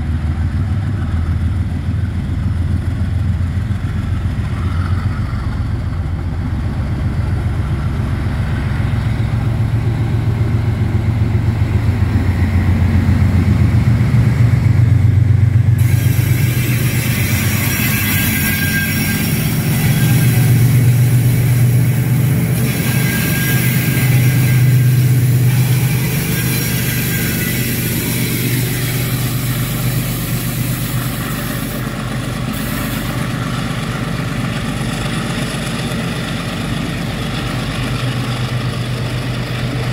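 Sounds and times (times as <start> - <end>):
locomotive engines droning: 0.0 - 39.9
loud hiss: 15.8 - 33.3.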